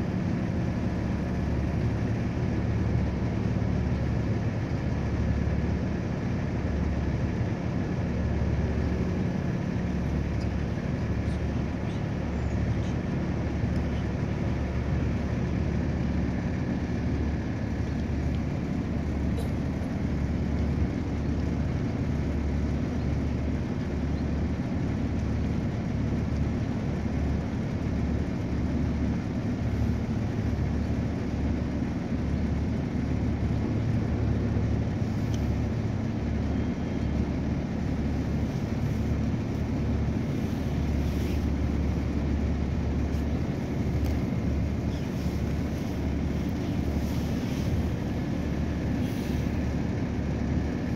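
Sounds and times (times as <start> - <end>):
boat engine rumble: 0.0 - 50.9
water wash: 0.0 - 50.9.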